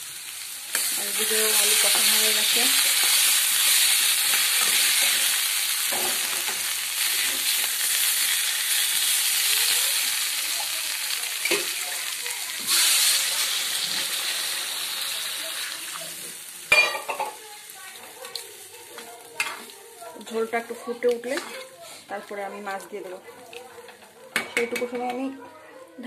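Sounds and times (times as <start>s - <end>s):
potatoes sizzling in hot oil: 0.0s - 23.1s
metal spatula scraping pan: 21.2s - 22.0s.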